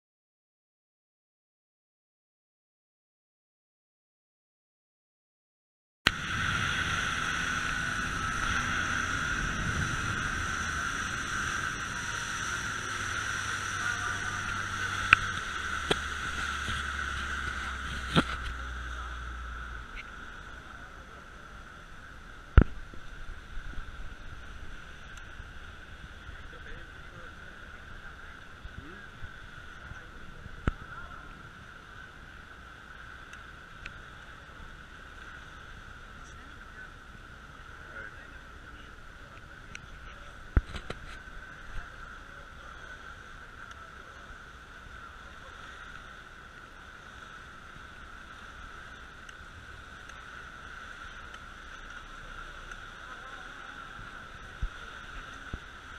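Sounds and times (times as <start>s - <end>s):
wind: 6.0s - 55.9s
high-pitched buzz: 6.1s - 31.3s
rushing water: 6.1s - 55.9s
speedboat engine: 6.1s - 55.9s.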